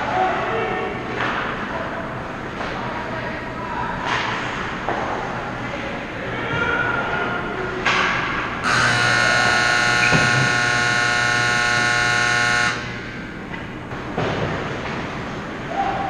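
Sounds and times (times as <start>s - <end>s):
electric horn blast: 8.6s - 13.0s.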